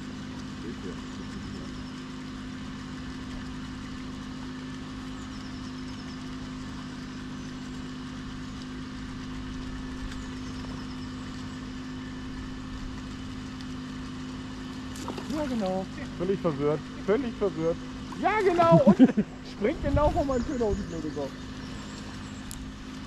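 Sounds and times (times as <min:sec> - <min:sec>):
mechanical hum: 0:00.0 - 0:23.0
small bird chirping: 0:10.1 - 0:12.1, 0:16.9 - 0:22.8.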